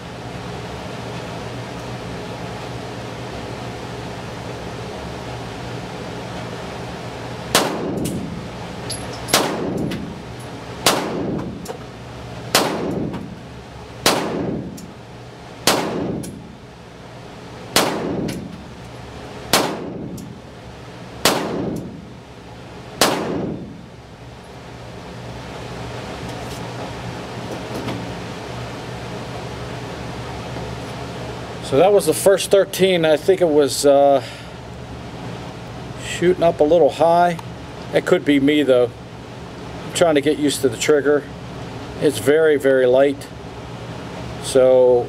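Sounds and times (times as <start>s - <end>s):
pistol shots echoing: 7.5s - 8.3s, 9.3s - 10.0s, 10.8s - 11.5s, 12.5s - 13.1s, 14.0s - 14.7s, 15.6s - 16.3s, 17.7s - 18.5s, 19.5s - 20.1s, 21.2s - 21.9s, 23.0s - 23.6s.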